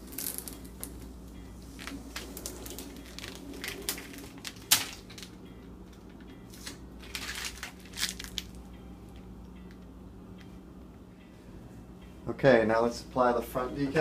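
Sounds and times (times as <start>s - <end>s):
plastic tape rustling and crinkling: 0.0s - 5.4s, 6.0s - 8.6s.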